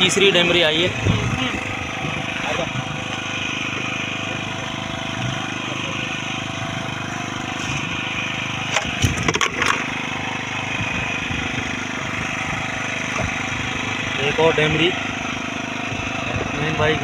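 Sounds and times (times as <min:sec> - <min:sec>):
boat engine idling: 0:00.0 - 0:17.0
sharp knocks against boat: 0:08.7 - 0:09.9.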